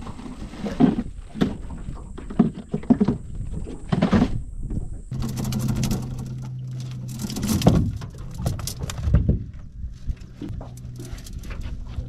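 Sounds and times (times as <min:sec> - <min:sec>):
steady low hum: 0:00.0 - 0:12.0
crab pot rattling and clattering: 0:05.1 - 0:09.2.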